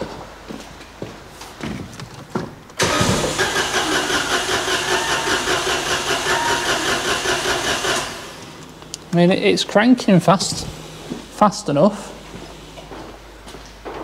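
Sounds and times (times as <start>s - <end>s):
starter motor cranking engine: 2.8s - 8.5s.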